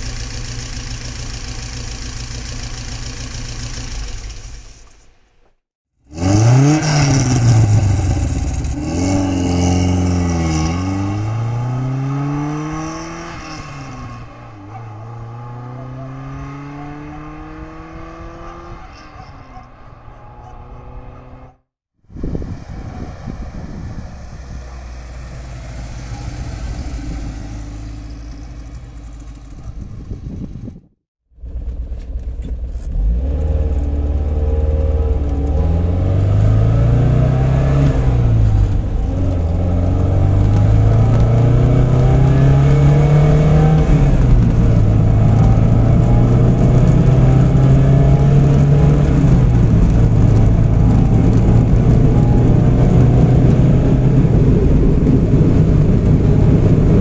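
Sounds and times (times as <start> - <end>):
car engine revving through gears: 6.1 - 21.6, 32.8 - 57.0.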